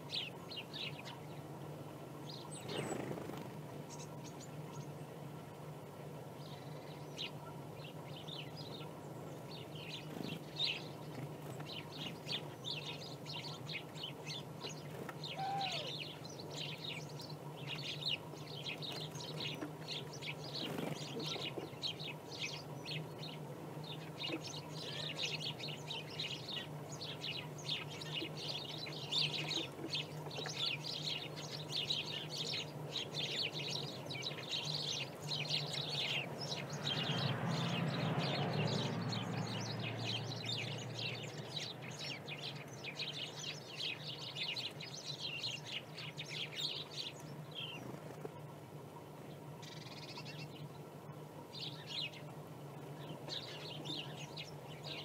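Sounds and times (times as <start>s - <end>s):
low steady hum: 0.0s - 55.0s
songbirds chirping: 0.0s - 55.0s.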